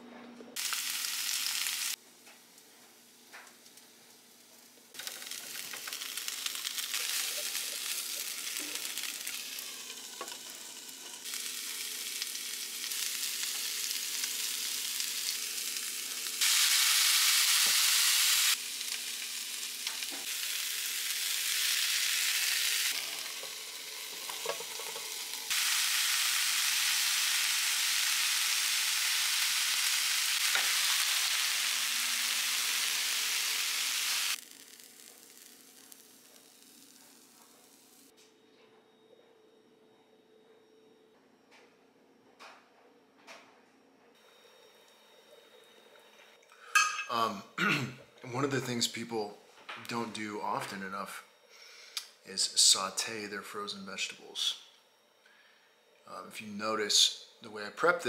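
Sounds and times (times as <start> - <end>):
food sizzling in a frying pan: 0.6 - 38.1.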